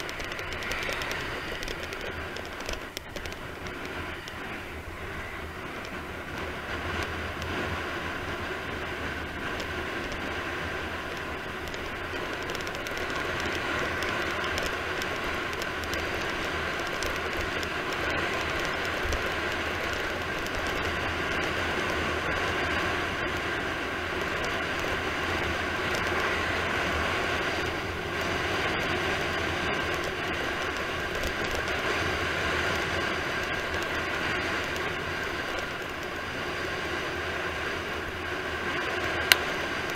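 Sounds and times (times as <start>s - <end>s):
tyre noise on asphalt: 0.0s - 39.9s.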